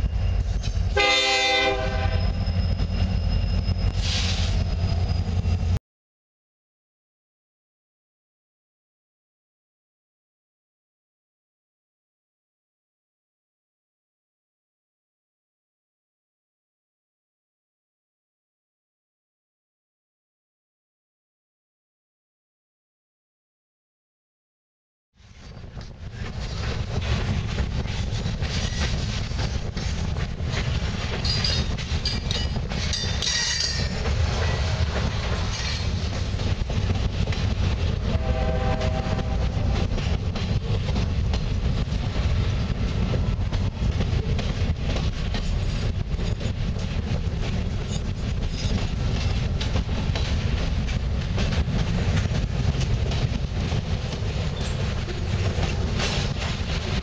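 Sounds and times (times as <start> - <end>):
wheels clicking over rail joints: 25.7 - 34.2.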